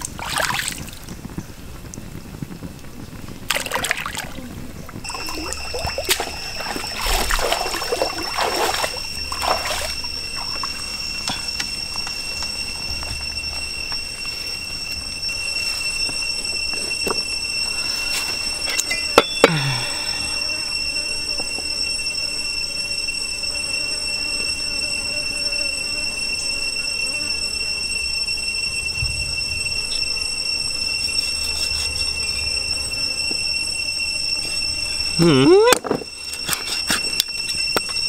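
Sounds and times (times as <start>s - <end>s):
high-pitched insect drone: 0.0s - 38.0s
cleaver scraping: 31.0s - 32.5s.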